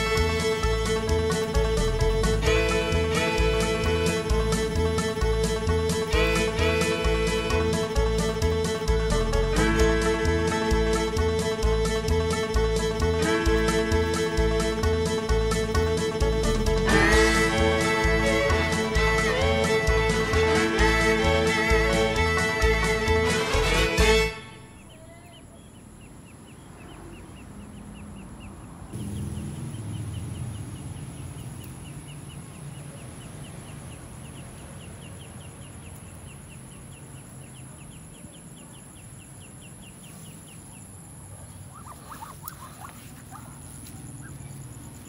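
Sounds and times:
ducklings peeping: 0:24.8 - 0:45.0.

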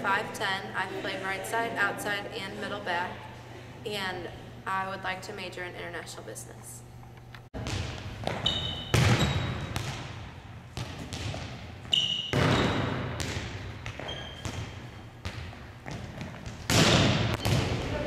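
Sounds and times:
volleyball slaps echoing: 0:07.6 - 0:18.0
sneaker squeaks: 0:08.2 - 0:09.8, 0:11.8 - 0:13.2, 0:13.8 - 0:16.6.

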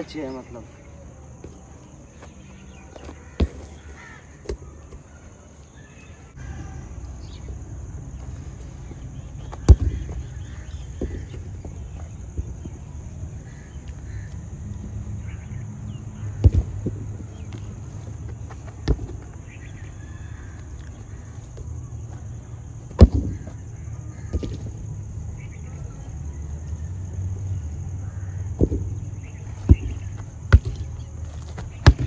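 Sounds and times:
outdoor background noise: 0:00.0 - 0:32.0
football kick thuds: 0:03.0 - 0:05.0, 0:09.4 - 0:12.9, 0:16.4 - 0:17.8, 0:18.5 - 0:19.3, 0:22.9 - 0:23.6, 0:24.2 - 0:24.8, 0:28.6 - 0:32.0.

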